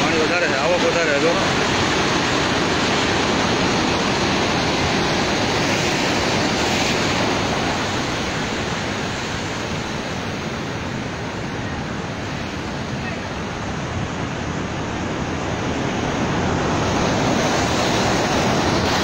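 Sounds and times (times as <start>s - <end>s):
heavy rain: 0.0s - 12.3s
wind: 0.0s - 19.0s.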